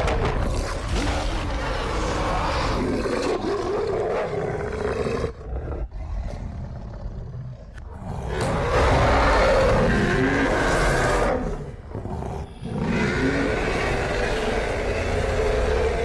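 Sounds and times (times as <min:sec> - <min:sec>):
werewolf roaring: 0:06.8 - 0:16.0.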